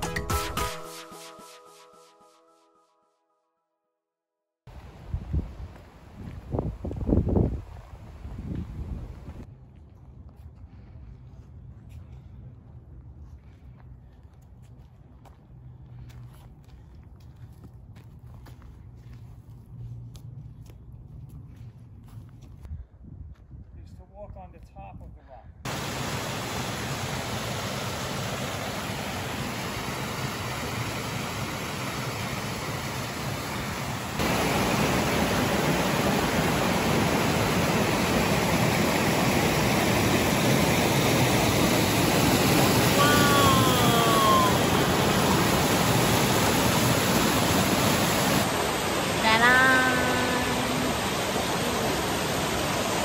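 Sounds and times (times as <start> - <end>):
waterfall and creek rushing over rocks: 25.7 - 53.0
short voice: 43.0 - 44.7, 49.2 - 51.0.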